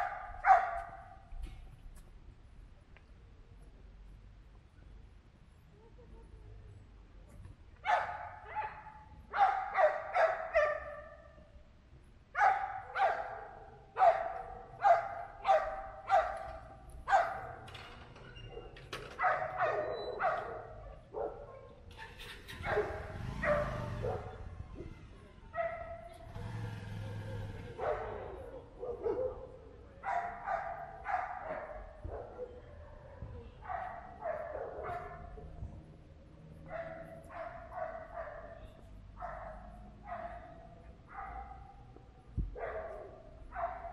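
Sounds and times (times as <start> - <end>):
dog barking: 0.0 - 1.2, 7.8 - 11.3, 12.4 - 17.7, 18.5 - 21.8, 22.6 - 24.6, 25.5 - 26.2, 27.1 - 35.4, 36.6 - 41.9, 42.5 - 43.9.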